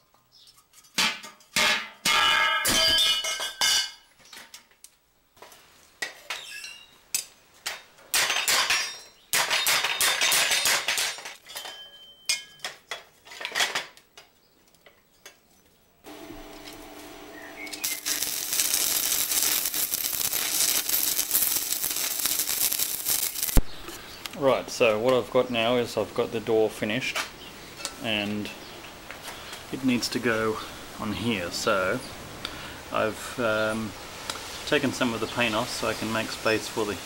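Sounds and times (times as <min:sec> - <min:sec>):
steel pieces clanking: 0:06.0 - 0:14.0, 0:17.7 - 0:23.6
welding arc crackling: 0:16.1 - 0:24.0.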